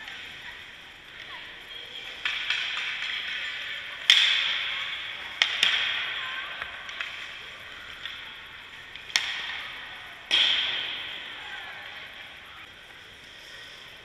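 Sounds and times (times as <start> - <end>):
puck cracks: 2.0 - 12.5.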